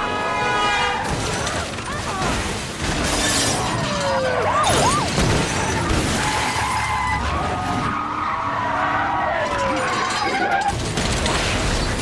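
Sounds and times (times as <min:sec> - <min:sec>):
glass shattering: 0:01.0 - 0:06.9.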